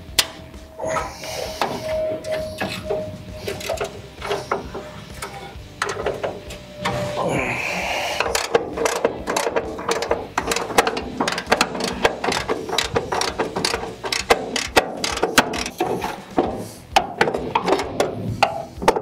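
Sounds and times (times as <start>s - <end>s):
ratchet wrench clicking: 8.2s - 19.0s.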